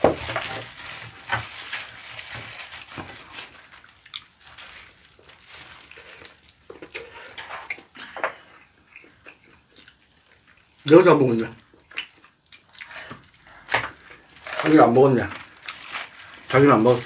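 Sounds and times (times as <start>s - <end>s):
plastic glove crinkling: 0.0s - 7.7s, 13.1s - 17.0s
wet squishing and tearing meat: 0.0s - 8.0s, 9.3s - 17.0s
chewing: 3.7s - 10.8s, 11.6s - 14.7s.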